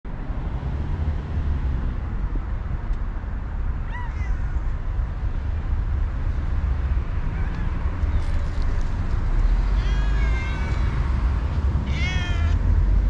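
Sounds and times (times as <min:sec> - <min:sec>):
cat meowing: 0:03.8 - 0:04.6, 0:09.6 - 0:11.2, 0:11.8 - 0:12.6.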